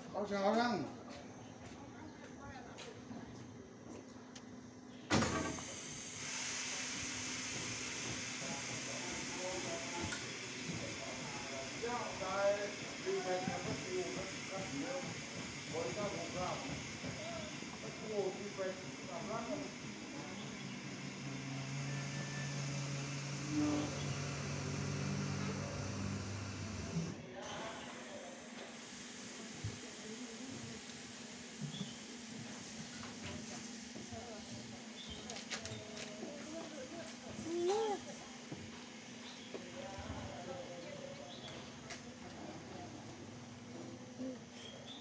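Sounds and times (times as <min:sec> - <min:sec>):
diesel locomotive engine idling: 0:00.0 - 0:45.0
air hissing from brake line: 0:05.1 - 0:32.8.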